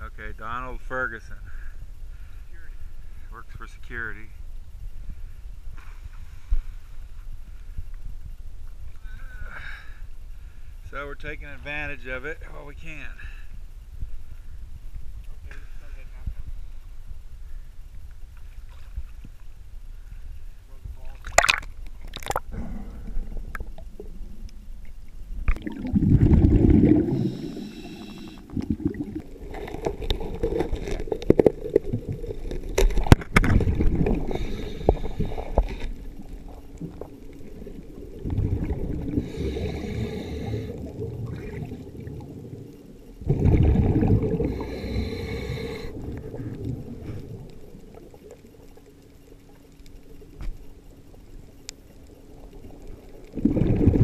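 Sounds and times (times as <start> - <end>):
sharp underwater clicks: 21.2 - 22.5, 28.1 - 39.9, 40.7 - 54.0
exhaled bubbles rushing: 21.2 - 24.4, 25.3 - 48.9, 52.6 - 54.0
diver breathing underwater: 25.8 - 32.8, 33.5 - 42.1, 43.2 - 47.7.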